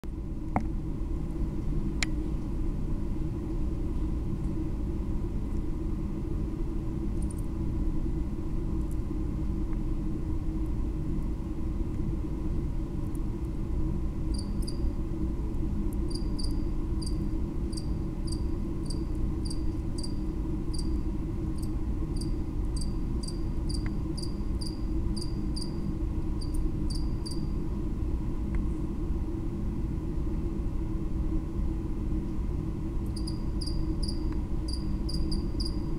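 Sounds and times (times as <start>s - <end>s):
steady low hum: 0.0s - 35.9s
cricket chirping: 14.3s - 14.8s, 16.1s - 21.0s, 21.6s - 27.6s, 33.1s - 35.9s.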